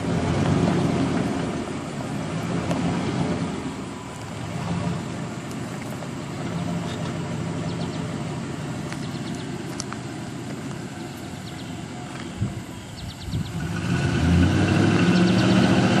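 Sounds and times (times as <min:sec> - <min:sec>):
truck engine at low revs: 0:00.0 - 0:16.0.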